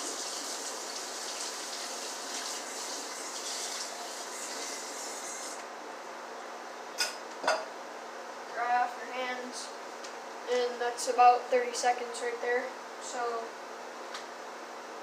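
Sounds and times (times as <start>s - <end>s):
tap water running: 0.0s - 5.6s.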